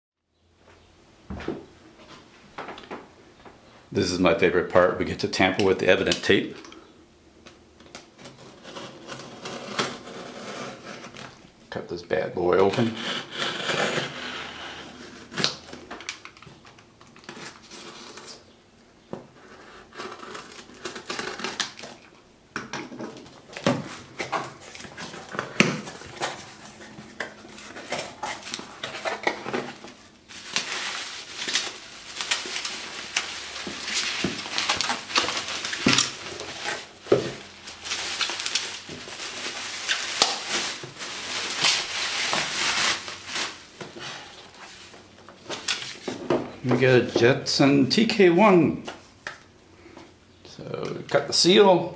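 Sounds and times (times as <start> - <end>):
bubble wrap crinkling: 12.7 - 18.6, 19.3 - 22.2, 23.1 - 46.2
knife cutting packing tape: 12.8 - 15.8, 19.6 - 22.0.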